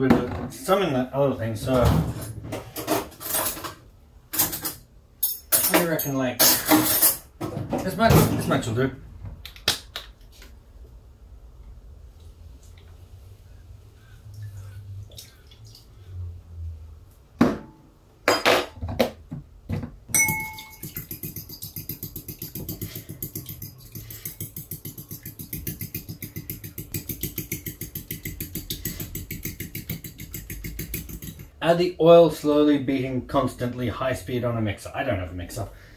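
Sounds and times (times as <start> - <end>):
utensil clinking against bowl: 20.1 - 31.4
whisking in a bowl by hand: 21.0 - 31.4.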